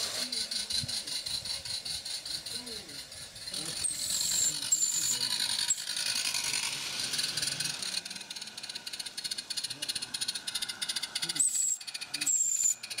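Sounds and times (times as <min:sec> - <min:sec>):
model train rattling clatter: 0:00.0 - 0:13.0
brief high squeaks: 0:11.4 - 0:12.8.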